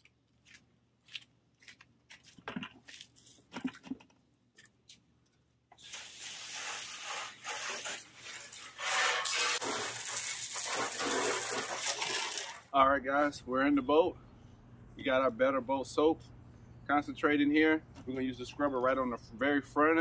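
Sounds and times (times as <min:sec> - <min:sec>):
hose spraying water onto boat: 0:05.8 - 0:12.7.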